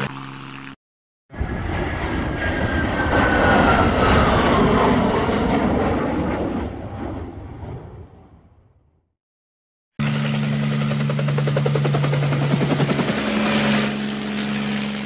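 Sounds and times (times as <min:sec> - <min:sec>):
jet fighter flying past: 0:00.0 - 0:09.0.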